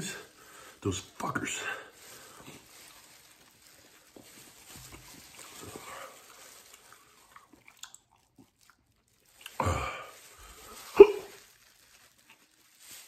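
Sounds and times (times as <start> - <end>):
chewing: 2.4 - 9.6.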